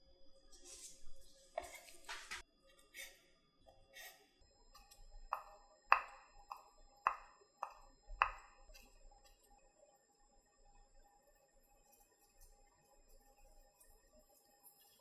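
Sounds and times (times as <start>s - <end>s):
knife tapping on wooden board: 5.3s - 8.5s.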